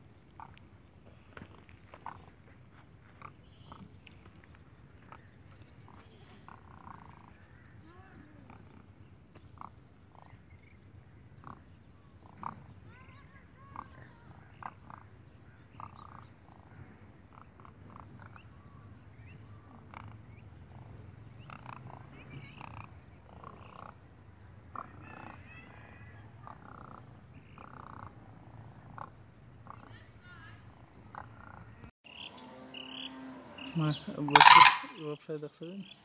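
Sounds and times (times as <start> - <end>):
cranes calling: 31.1 - 36.0.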